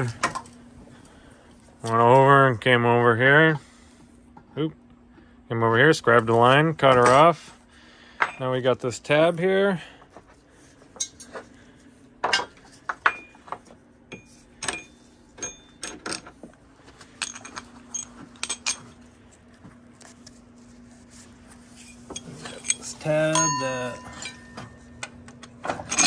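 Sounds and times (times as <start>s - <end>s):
faint steady hum: 0.0s - 26.0s
metallic clinks and clatters: 17.2s - 19.0s.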